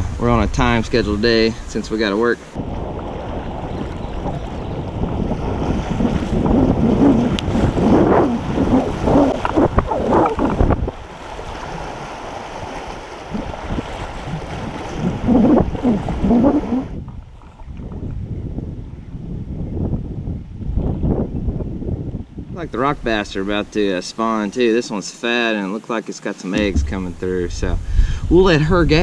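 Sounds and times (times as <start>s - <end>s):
rushing water splashing: 2.4s - 16.9s, 26.5s - 28.5s
wind buffeting microphone: 2.5s - 23.2s, 26.6s - 29.0s.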